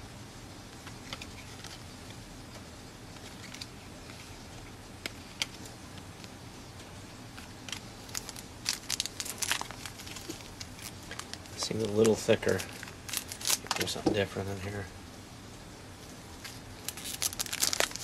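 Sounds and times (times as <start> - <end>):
cards clicking and rustling: 7.3 - 14.1, 16.4 - 18.0
wrapper crinkling: 7.4 - 14.0, 16.4 - 18.0.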